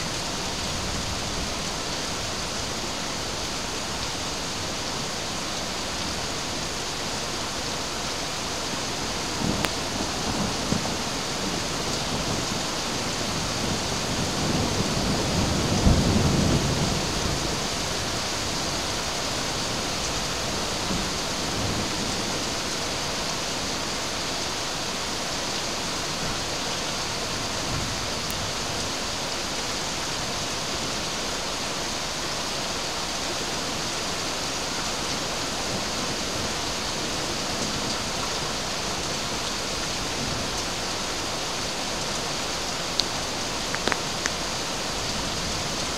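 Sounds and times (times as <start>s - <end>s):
steady rain hissing: 0.0s - 45.9s
low roll of thunder: 13.3s - 18.1s.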